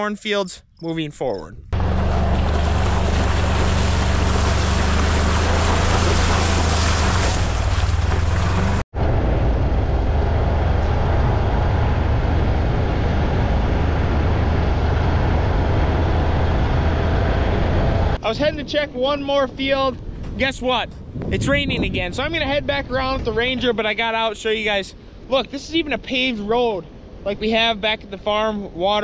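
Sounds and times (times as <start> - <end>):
road noise: 1.7 - 18.8
vehicle engine running: 1.8 - 18.2
wind noise: 1.8 - 29.0.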